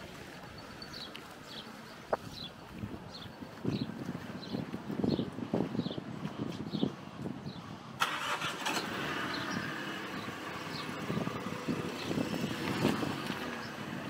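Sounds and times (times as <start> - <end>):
engine running: 8.0 - 14.0.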